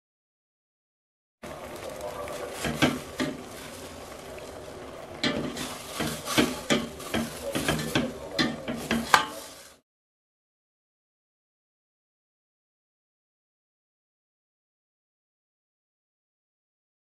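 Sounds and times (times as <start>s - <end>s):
steady hiss: 1.4s - 9.8s
ladle clinking and scraping a pot: 2.2s - 4.1s, 5.1s - 9.8s.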